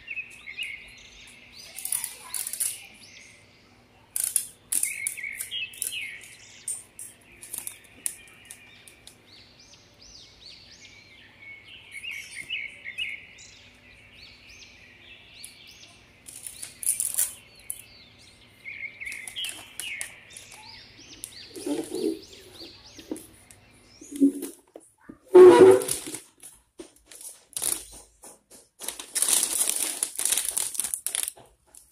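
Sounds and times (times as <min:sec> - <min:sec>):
small birds chirping: 0:00.0 - 0:26.1, 0:27.2 - 0:31.9
cellophane wrap crinkling: 0:07.4 - 0:08.6, 0:16.3 - 0:17.4, 0:19.1 - 0:22.2, 0:25.3 - 0:31.9.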